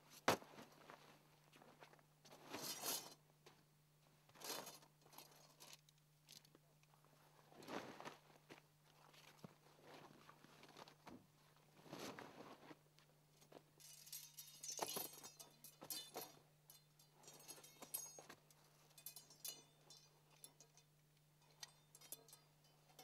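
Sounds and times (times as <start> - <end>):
tent poles clinking: 13.4 - 23.0.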